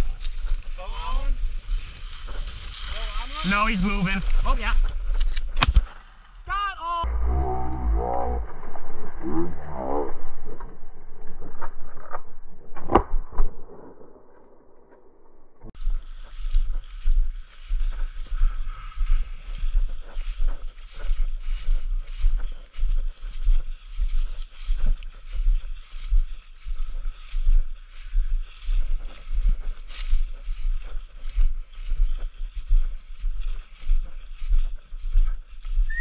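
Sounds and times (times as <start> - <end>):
brush rustling: 0.0 - 6.1, 15.8 - 36.0
footsteps crunching through dry grass: 0.0 - 6.1, 15.8 - 36.0
person speaking: 2.9 - 4.9, 6.5 - 8.4.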